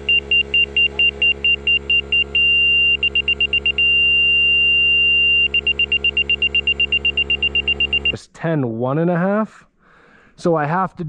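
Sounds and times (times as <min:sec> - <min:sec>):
laser receiver beeping: 0:00.0 - 0:08.2
low hum: 0:00.0 - 0:08.2
steady electronic tone: 0:00.0 - 0:08.2.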